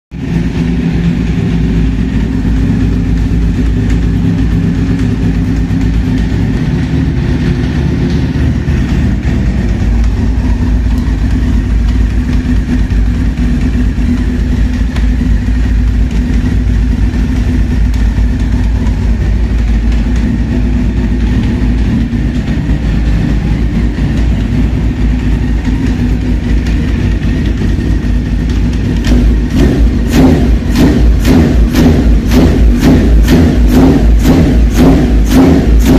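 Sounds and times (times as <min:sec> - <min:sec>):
motorcycle engine idling: 0:00.1 - 0:35.9.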